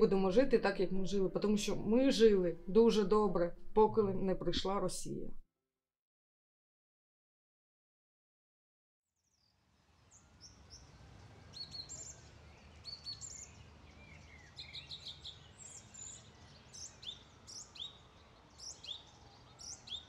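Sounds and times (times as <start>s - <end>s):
small birds chirping: 9.2s - 20.0s.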